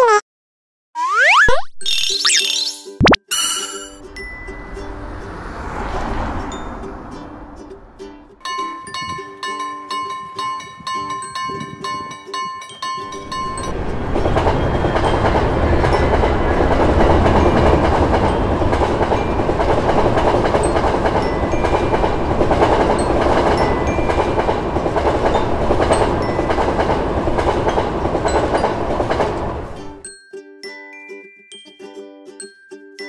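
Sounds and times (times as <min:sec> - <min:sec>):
train wheels rumbling on rails: 0:13.0 - 0:30.0.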